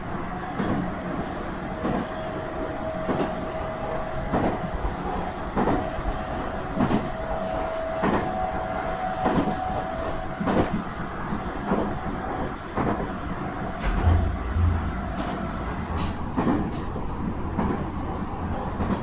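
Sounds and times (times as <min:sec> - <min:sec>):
train running noise with whine: 0:00.0 - 0:19.0
train wheels clacking over rail joints: 0:13.8 - 0:18.0.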